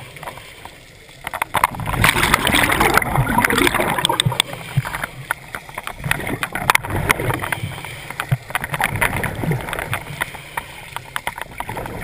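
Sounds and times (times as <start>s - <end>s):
underwater bubbles rushing: 0.0s - 12.0s
scattered clicks: 0.2s - 12.0s.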